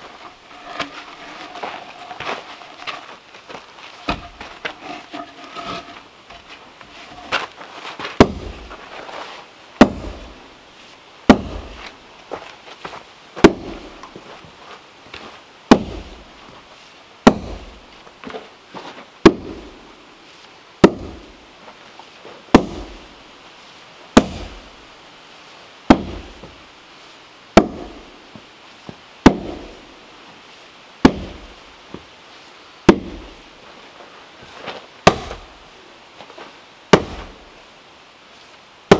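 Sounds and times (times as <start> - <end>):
sledgehammer striking wooden log: 4.0 - 5.9, 8.2 - 8.7, 9.8 - 10.3, 11.3 - 11.8, 13.4 - 13.9, 15.7 - 16.2, 17.2 - 17.7, 19.2 - 19.7, 20.8 - 21.3, 22.5 - 23.0, 24.2 - 24.6, 25.9 - 26.5, 27.6 - 28.0, 29.2 - 29.8, 31.0 - 31.5, 32.9 - 33.3, 35.0 - 35.5, 36.9 - 37.4.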